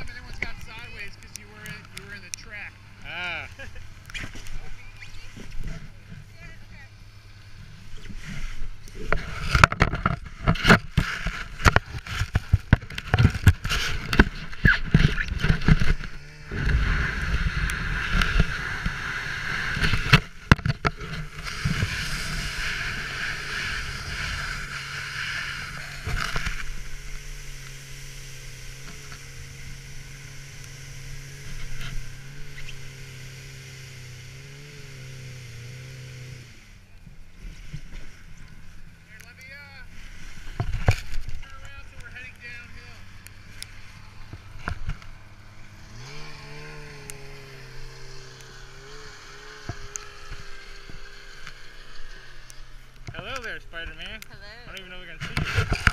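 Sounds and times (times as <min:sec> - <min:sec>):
snowmobile engine running: 0:00.0 - 0:55.9
sled runners scraping on snow: 0:07.6 - 0:36.6.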